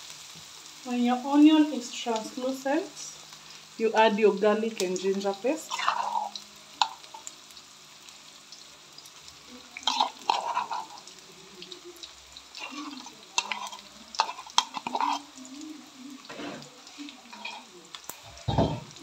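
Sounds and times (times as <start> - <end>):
onions sizzling in oil: 0.0 - 19.0
spoon knocking and scraping pan: 5.7 - 7.3, 9.9 - 11.0, 12.6 - 15.3, 18.3 - 19.0.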